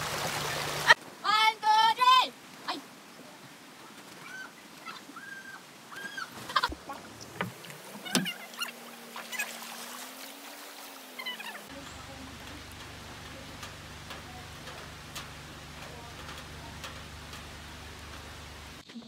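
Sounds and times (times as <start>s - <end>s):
light hiss: 0.0s - 19.0s
steady low hum: 11.7s - 18.8s.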